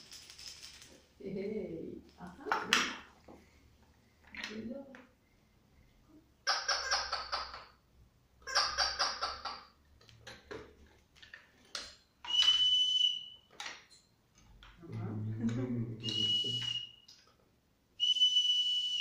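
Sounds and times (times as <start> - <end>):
toy whistle high note: 12.3 - 13.4, 16.1 - 17.1, 18.0 - 19.0.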